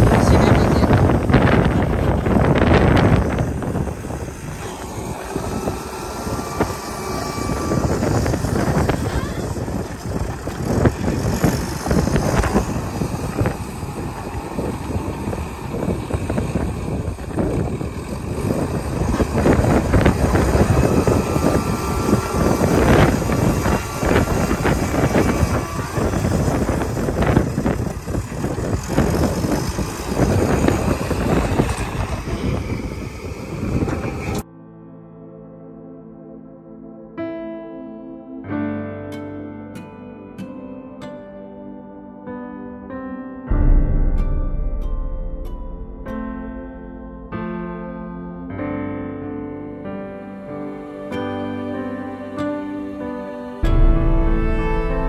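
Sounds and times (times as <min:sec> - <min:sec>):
wind buffeting microphone: 0:00.0 - 0:34.4, 0:43.5 - 0:47.4, 0:53.6 - 0:55.0.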